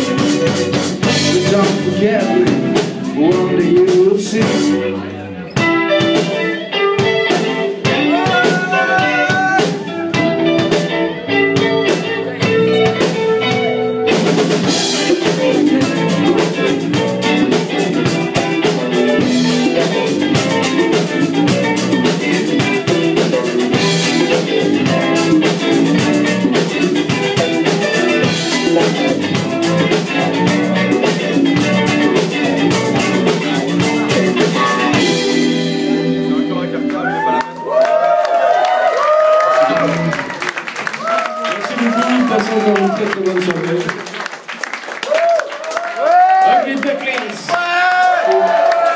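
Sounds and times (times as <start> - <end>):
drum kit with cymbals: 0.0 - 4.9, 5.5 - 36.6
bass guitar: 0.0 - 44.1
electric guitars: 0.0 - 48.9.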